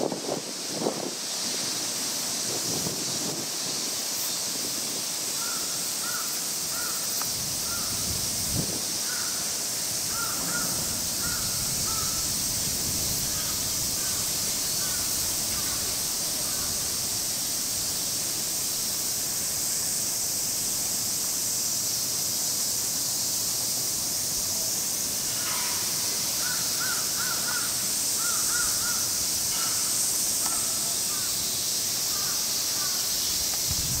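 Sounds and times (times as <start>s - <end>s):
cicada chorus: 0.0s - 34.0s
crows cawing: 5.4s - 8.0s, 9.0s - 9.5s, 10.1s - 12.5s, 13.2s - 17.0s, 26.4s - 31.4s, 32.1s - 33.0s.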